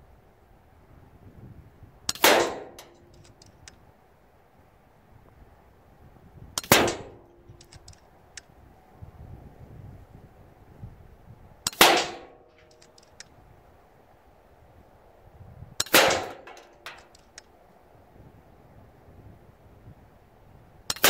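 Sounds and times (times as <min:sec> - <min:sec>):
wind on microphone: 0:00.0 - 0:02.1, 0:04.9 - 0:11.7, 0:13.3 - 0:15.8, 0:17.8 - 0:20.9
air rifle shots: 0:02.1 - 0:03.4, 0:06.6 - 0:07.9, 0:11.7 - 0:12.8, 0:15.8 - 0:17.2
small clicks: 0:02.8 - 0:03.8, 0:07.4 - 0:08.5, 0:12.5 - 0:13.4, 0:15.8 - 0:17.5.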